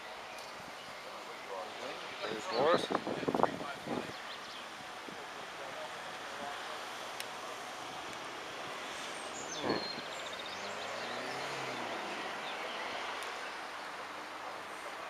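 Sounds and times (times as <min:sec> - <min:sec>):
open-air background noise: 0:00.0 - 0:15.0.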